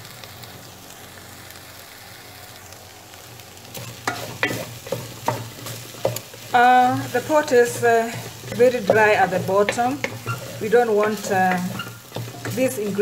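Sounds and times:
herbs sizzling in a pot: 0.0 - 13.0
wooden spoon scraping a pot: 3.8 - 13.0.

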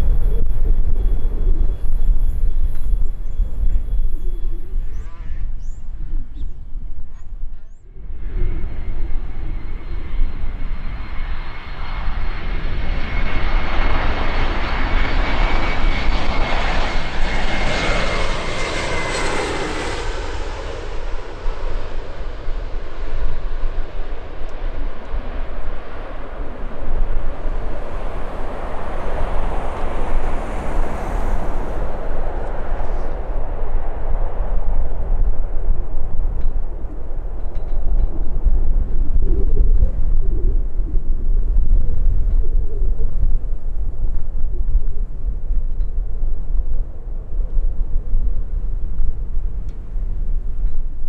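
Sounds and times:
jet engines roaring with whine: 0.0 - 51.0.

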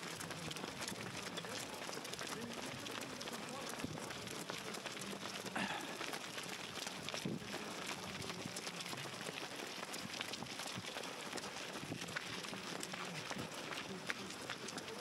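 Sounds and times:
running footsteps: 0.0 - 15.0.

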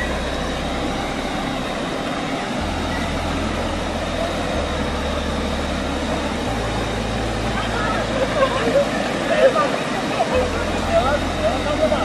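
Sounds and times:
waterfall pouring into pool: 0.0 - 12.0.

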